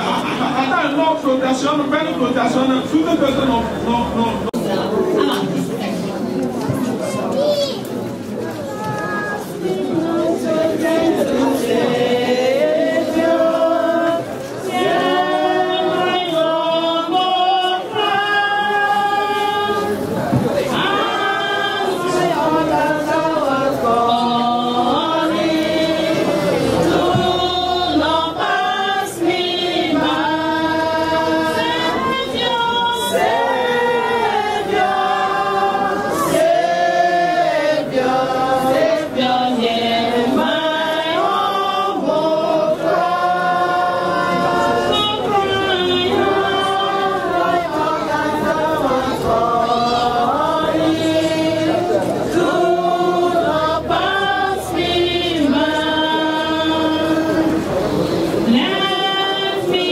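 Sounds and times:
group singing unaccompanied: 0.0s - 5.4s, 9.0s - 59.9s.

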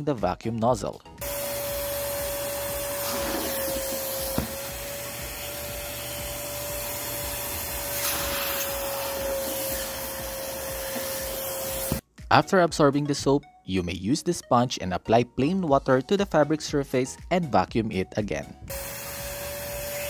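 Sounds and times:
wet vacuum suction and motor whine: 1.2s - 12.0s, 18.7s - 20.0s.

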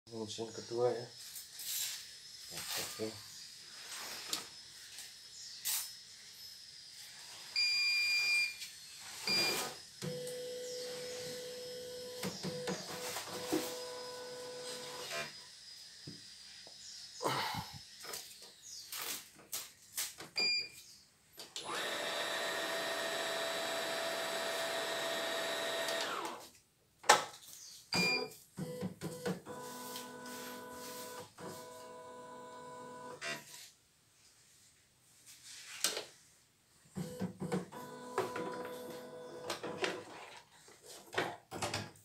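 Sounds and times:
embroidery machine motor running: 21.7s - 26.4s.

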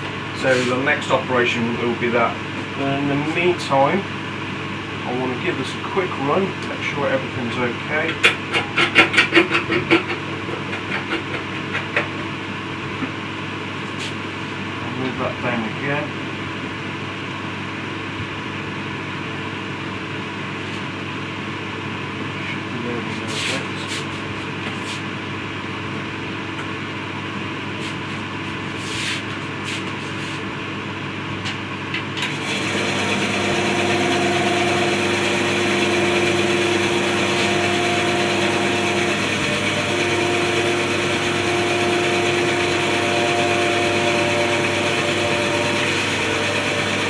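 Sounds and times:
bandsaw running with steady hum: 32.2s - 47.0s.

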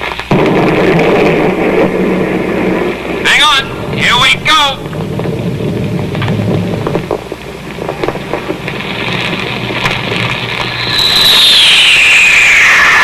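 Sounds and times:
rushing rocket roar with crackles: 0.0s - 13.0s
falling whistle: 10.2s - 13.0s.

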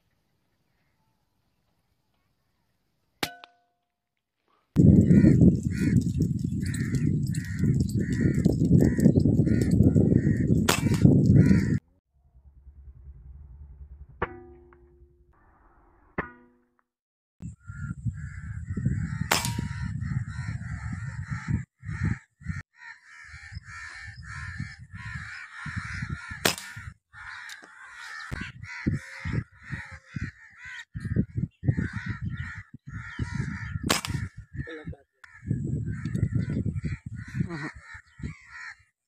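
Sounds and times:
birds calling: 4.8s - 11.8s, 17.5s - 39.0s
loud low rumble: 11.4s - 15.6s.

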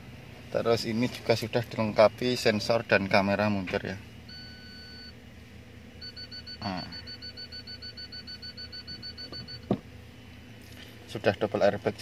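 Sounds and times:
parking sensor beeping: 4.2s - 5.2s, 6.0s - 9.8s.

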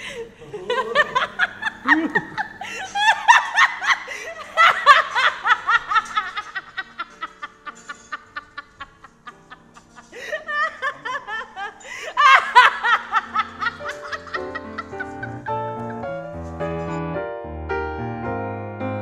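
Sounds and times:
woman laughing hard: 0.0s - 16.2s
quiet background music: 0.0s - 19.0s.

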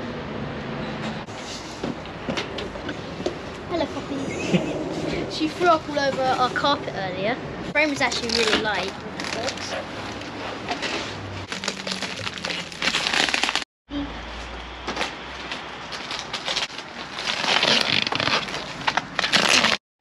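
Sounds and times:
plastic and bubble wrap crinkling: 8.0s - 13.6s, 14.9s - 19.8s.

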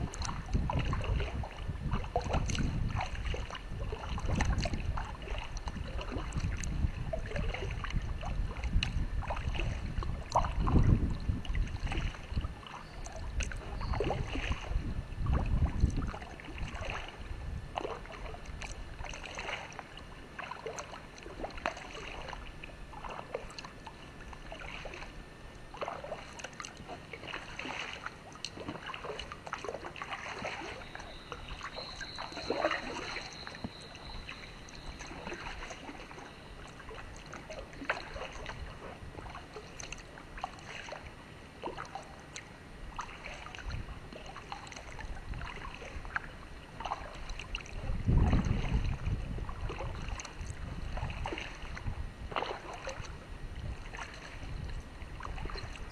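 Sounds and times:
wind on microphone: 0.0s - 19.5s, 42.8s - 55.9s
paddle splashing in water: 0.0s - 55.9s.

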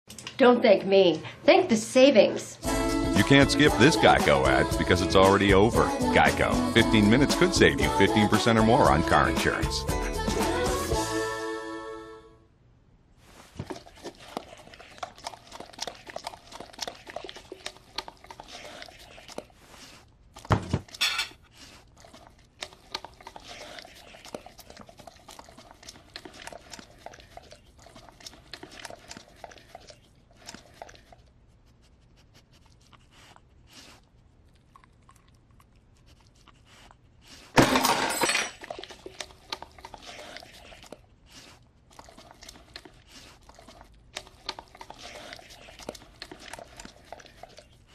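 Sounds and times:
dishes clattering: 20.6s - 21.4s, 37.6s - 38.8s
dishes and cutlery clinking: 20.9s - 21.4s, 37.6s - 38.8s.

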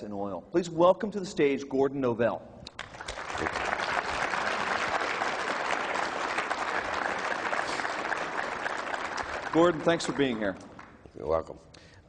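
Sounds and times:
audience applauding: 2.8s - 11.1s.

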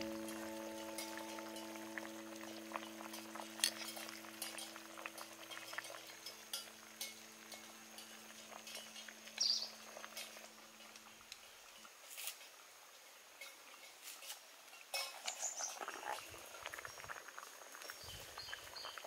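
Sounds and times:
held music chord: 0.0s - 5.4s
ladle pouring sauce: 0.0s - 9.2s
rustle: 0.0s - 19.0s
stew simmering: 0.0s - 19.0s.

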